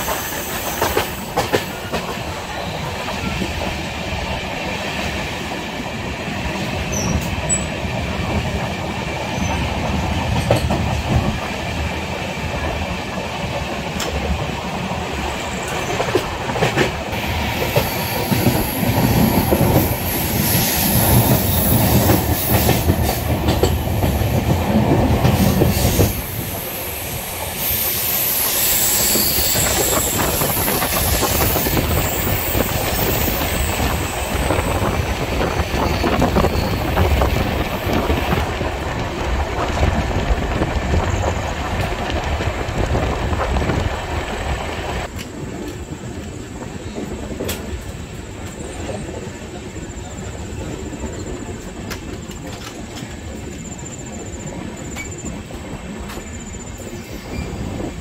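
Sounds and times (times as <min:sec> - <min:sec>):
train rushing rumble: 0:00.0 - 0:58.0
high wheel squeal: 0:25.4 - 0:34.8, 0:35.5 - 0:37.6, 0:56.4 - 0:57.8.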